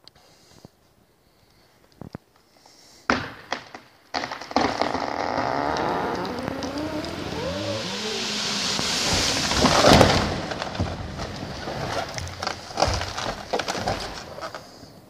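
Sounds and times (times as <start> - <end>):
branches snapping and thudding: 4.1 - 14.7
tree falling heavy crash: 4.2 - 14.6
tree limbs rushing swish: 5.6 - 12.4.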